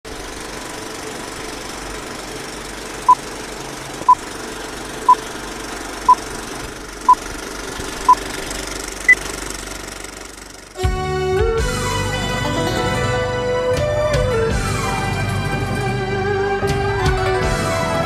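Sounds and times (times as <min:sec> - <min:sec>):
film projector clatter: 0:00.1 - 0:10.8.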